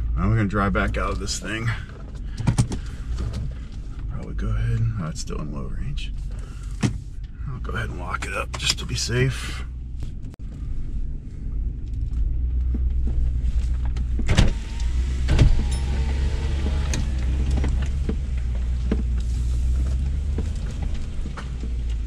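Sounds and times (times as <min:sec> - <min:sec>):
engine running at crawling speed: 0:06.1 - 0:22.0.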